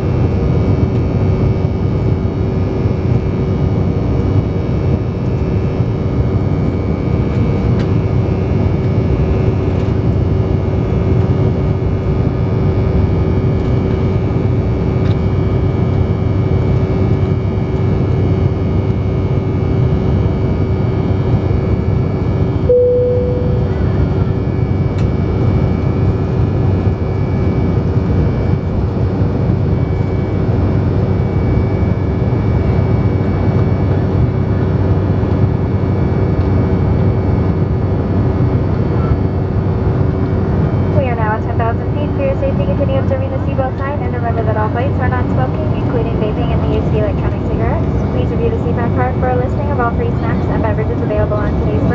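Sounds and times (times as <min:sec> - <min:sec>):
aircraft cabin engine drone: 0:00.0 - 0:51.9
steady hum: 0:00.0 - 0:51.9
short beep: 0:22.7 - 0:23.9.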